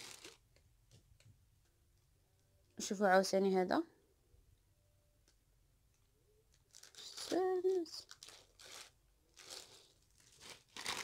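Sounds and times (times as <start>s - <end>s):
plastic wrapping crinkling: 0.0s - 0.6s, 6.5s - 11.0s.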